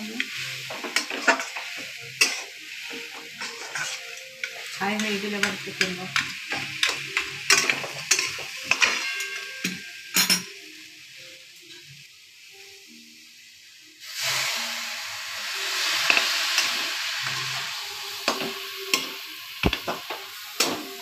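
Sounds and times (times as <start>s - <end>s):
metal spatula scraping a pan: 0.2s - 9.8s, 15.7s - 19.2s.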